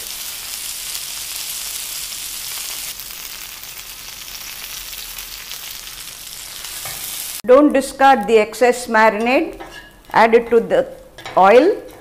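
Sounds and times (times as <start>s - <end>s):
fish sizzling in hot oil: 0.0s - 7.4s.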